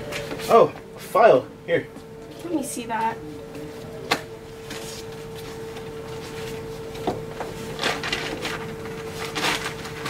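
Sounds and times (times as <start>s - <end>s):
faint steady hum: 0.0s - 10.0s
paper rustling: 7.6s - 10.0s.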